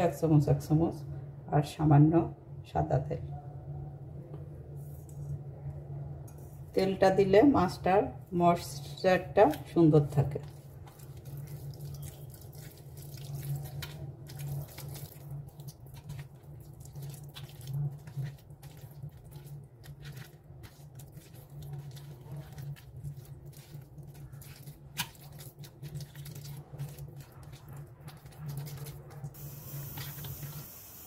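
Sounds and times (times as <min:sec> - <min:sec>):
steady low hum: 0:00.0 - 0:31.0
hand squishing marinade on fish: 0:08.9 - 0:30.2.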